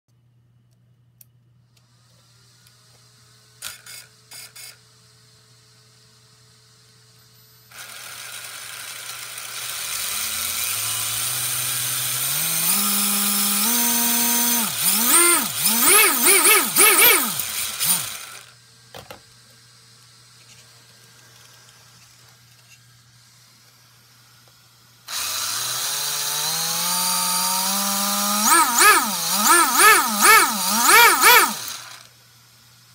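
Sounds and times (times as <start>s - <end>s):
rc car motor whining: 3.6s - 4.8s, 7.6s - 19.2s, 25.0s - 32.2s.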